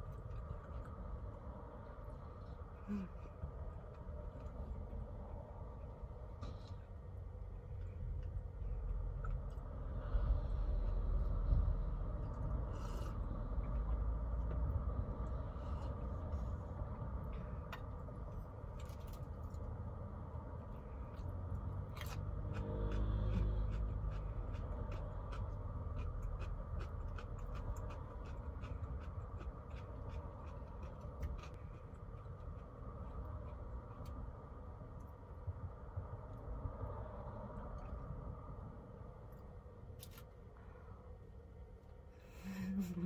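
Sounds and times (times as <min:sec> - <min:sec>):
low rumble: 0:00.0 - 0:43.0
person chewing: 0:21.9 - 0:34.2.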